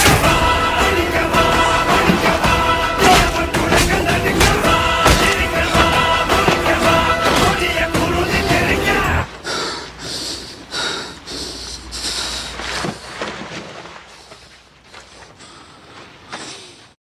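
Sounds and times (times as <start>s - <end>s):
song: 0.0s - 9.3s
man breathing heavily: 9.2s - 13.2s, 14.1s - 17.0s.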